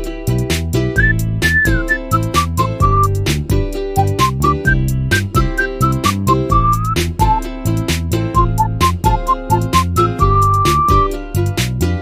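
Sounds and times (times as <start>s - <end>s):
electronic music with whistle-like melody: 1.0s - 3.4s, 4.0s - 7.6s, 8.2s - 11.4s.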